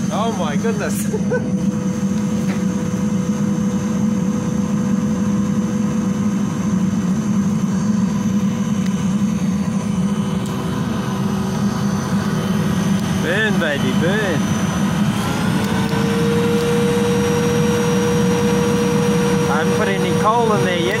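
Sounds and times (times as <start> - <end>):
electric blower humming and whining: 0.0 - 21.0
fire burning hard: 6.8 - 21.0.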